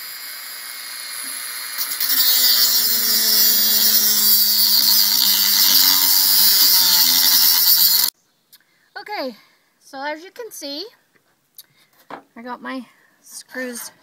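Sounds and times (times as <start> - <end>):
rotary tool grinding metal: 0.0 - 8.1.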